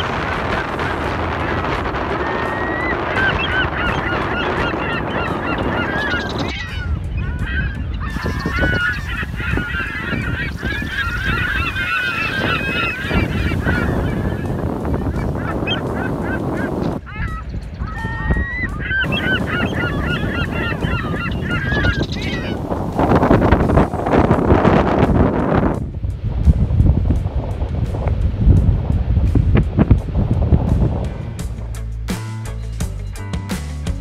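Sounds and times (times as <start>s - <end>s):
flock of birds chirping: 0.0s - 24.5s
wind and surf rushing: 0.0s - 32.6s.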